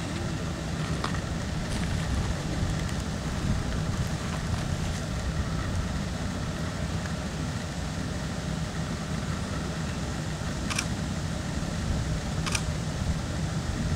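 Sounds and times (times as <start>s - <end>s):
low rumble of background noise: 0.0s - 13.9s.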